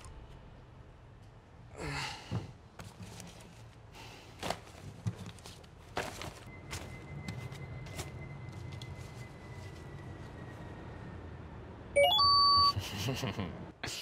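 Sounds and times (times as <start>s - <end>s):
man sighing: 1.7s - 2.5s.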